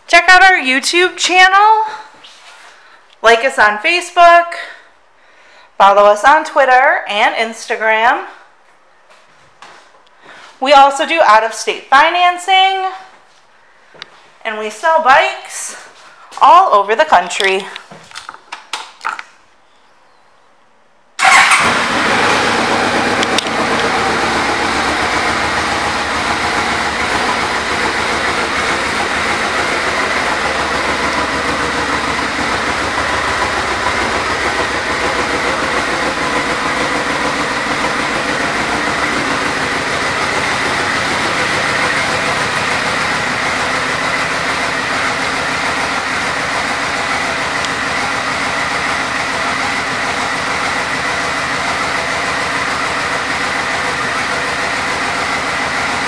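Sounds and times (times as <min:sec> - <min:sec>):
motorcycle engine starting and idling: 0:21.2 - 0:56.0.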